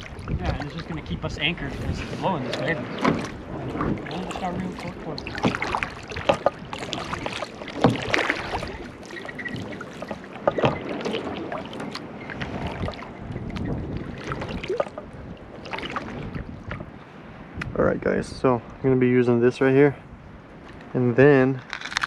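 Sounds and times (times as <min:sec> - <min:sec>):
paddle splashing in water: 0:00.0 - 0:17.6.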